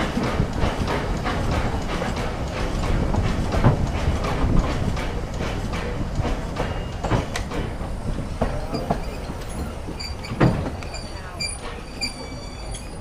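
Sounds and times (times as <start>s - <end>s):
train wheels knocking over rail joints: 0.0s - 13.0s
heavy clunk: 0.2s - 7.8s, 10.1s - 10.9s
high wheel squeal: 8.5s - 13.0s.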